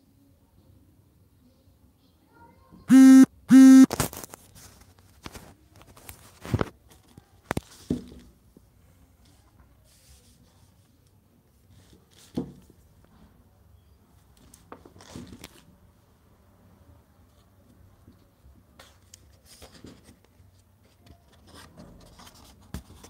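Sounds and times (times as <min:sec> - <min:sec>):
short buzzing beep: 0:02.9 - 0:04.0.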